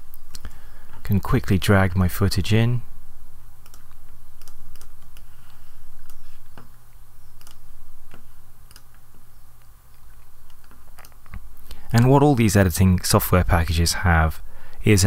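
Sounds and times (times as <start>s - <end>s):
low hum: 0.0s - 15.0s
mouse and keyboard clicks: 7.4s - 9.0s, 10.0s - 12.1s.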